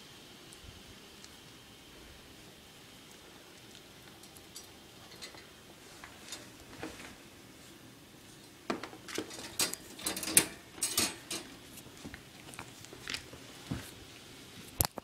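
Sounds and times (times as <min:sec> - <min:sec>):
wire dog crate rattling: 0:09.1 - 0:11.5.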